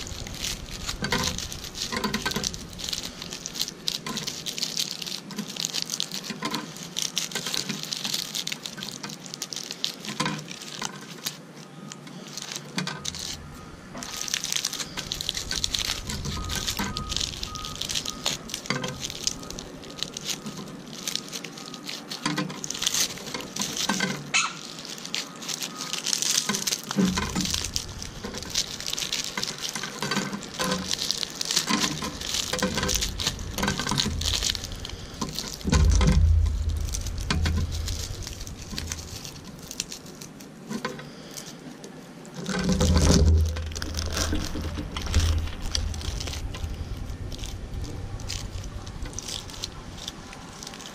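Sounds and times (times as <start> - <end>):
low rumble: 0.0 - 5.7, 13.0 - 21.2, 26.9 - 40.4, 42.8 - 50.9
seeds pattering onto a tabletop: 0.0 - 41.6
dried seeds rustling and crackling: 0.0 - 50.9.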